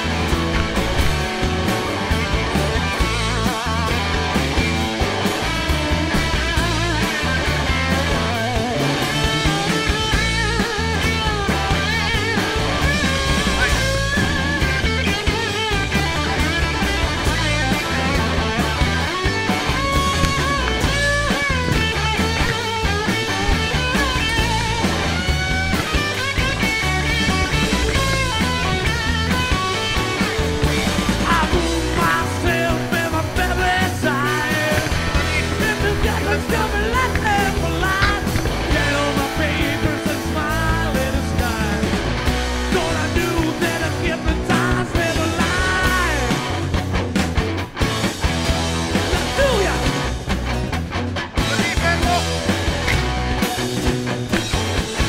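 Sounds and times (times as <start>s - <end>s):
bass and drums: 0.0s - 55.0s
lead guitar bending notes: 0.0s - 55.0s
rock music with singing: 0.0s - 55.0s.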